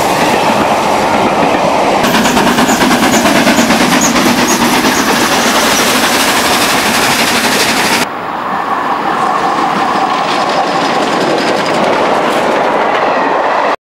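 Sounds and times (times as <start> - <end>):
train wheels clattering: 0.0 - 8.1, 9.4 - 13.2
steam train passing: 0.0 - 13.8.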